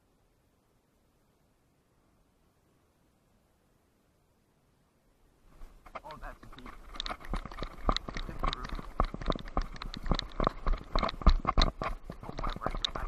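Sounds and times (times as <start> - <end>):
quick footsteps on hard ground: 5.5 - 13.0
camera knocking: 5.8 - 13.0.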